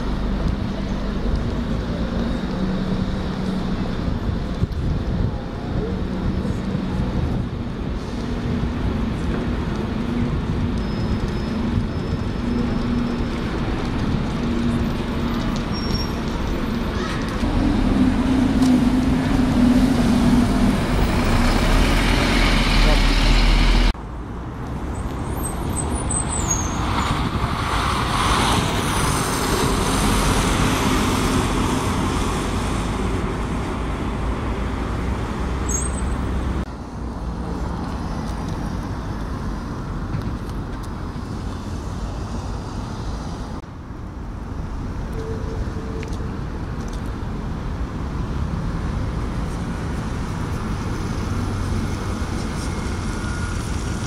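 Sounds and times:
buses manoeuvring slowly: 0.0 - 54.0
steady traffic noise: 0.0 - 54.0.

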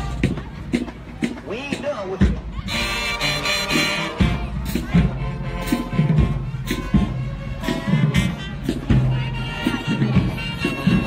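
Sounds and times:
drum line hits: 0.0 - 11.0
brass holding chords: 2.6 - 11.0.

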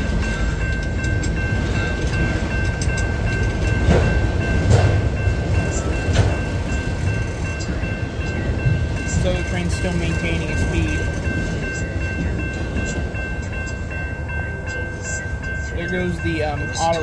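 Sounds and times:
freight train rumbling: 0.0 - 17.0
railroad crossing bell ringing: 0.0 - 17.0
wheels clacking over rail joints: 0.0 - 17.0.

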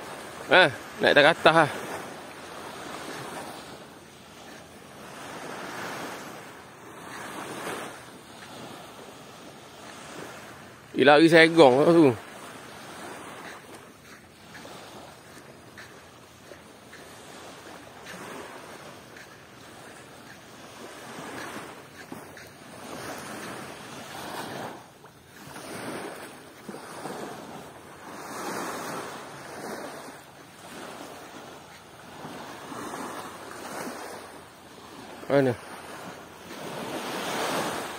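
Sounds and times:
water washing at shore: 0.0 - 37.9.

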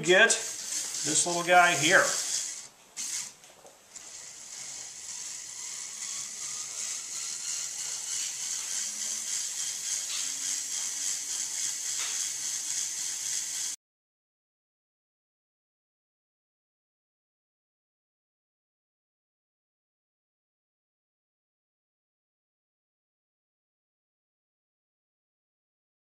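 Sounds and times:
small motor whirring: 0.0 - 13.8.

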